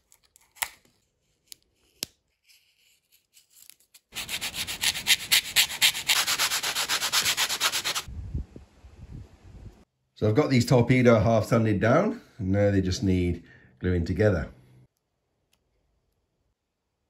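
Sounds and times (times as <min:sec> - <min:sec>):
sandpaper sanding plastic: 0:04.1 - 0:08.1.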